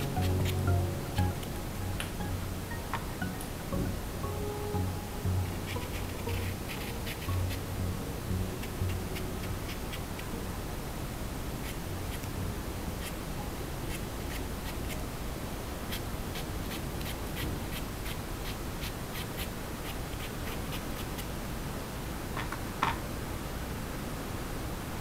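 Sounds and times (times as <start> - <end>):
paintbrush scratching on fabric: 5.5 - 7.7, 8.6 - 10.3, 11.6 - 12.3, 13.8 - 15.1, 15.9 - 21.3.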